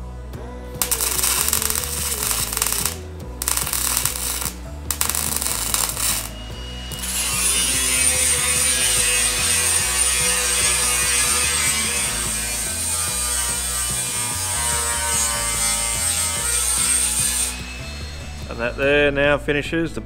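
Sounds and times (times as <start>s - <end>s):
angle grinder whine: 0.8s - 19.3s
welder crackling: 0.8s - 19.4s.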